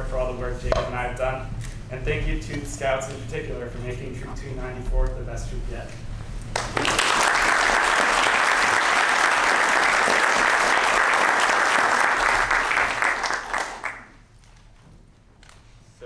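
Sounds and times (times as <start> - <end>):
audience applauding: 6.5 - 14.2.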